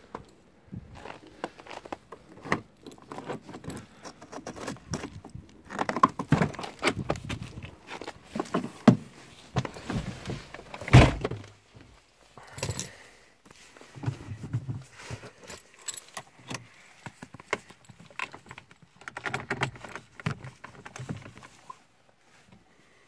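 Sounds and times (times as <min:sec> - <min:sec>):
keys jangling: 0:12.4 - 0:13.0.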